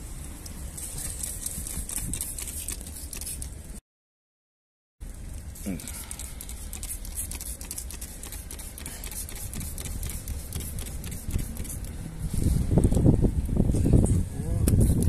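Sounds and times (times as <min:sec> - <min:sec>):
spray bottle hissing: 0:00.8 - 0:03.6, 0:06.0 - 0:12.0
steady low rumble: 0:05.0 - 0:15.0.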